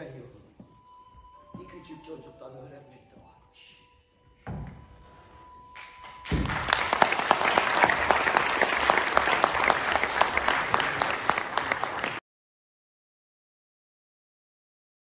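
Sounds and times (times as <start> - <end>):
audience applauding: 5.8 - 12.2.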